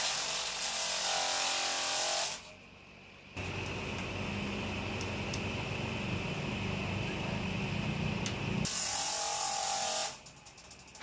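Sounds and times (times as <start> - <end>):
table saw cutting wood: 0.0 - 2.5.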